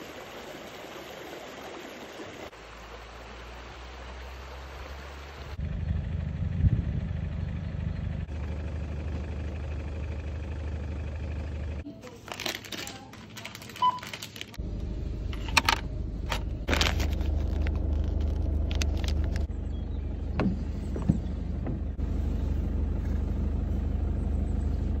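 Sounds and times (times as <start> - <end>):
low rumble inside van: 4.7 - 12.0, 14.0 - 25.0
plastic bag crinkling: 11.9 - 14.6, 16.4 - 19.4.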